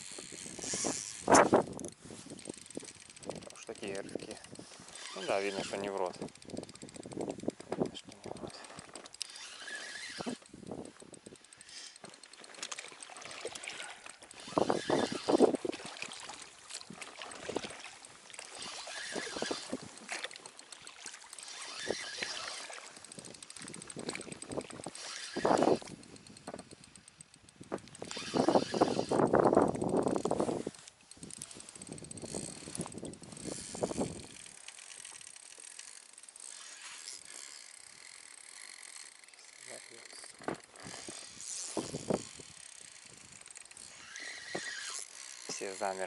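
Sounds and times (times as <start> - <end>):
fishing reel gears clicking: 0.0 - 46.0
water lapping against boat: 4.0 - 26.6, 36.5 - 46.0
clothing rustling on microphone: 30.1 - 34.2.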